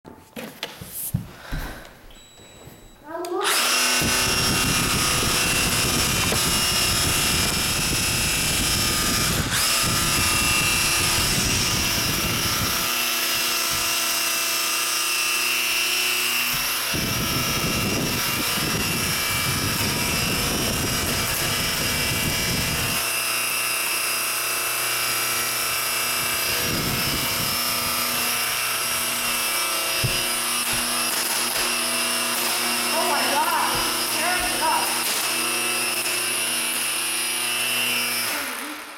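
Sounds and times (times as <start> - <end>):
model airplane motor whining: 3.3 - 38.9
wind buffeting microphone: 4.0 - 12.8, 16.9 - 23.0, 26.2 - 28.3.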